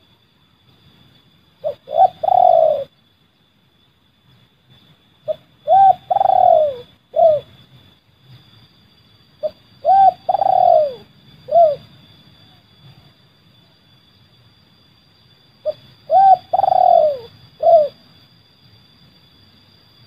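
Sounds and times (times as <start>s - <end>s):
dove cooing: 1.6s - 2.9s, 5.3s - 7.5s, 9.4s - 11.9s, 15.6s - 18.0s.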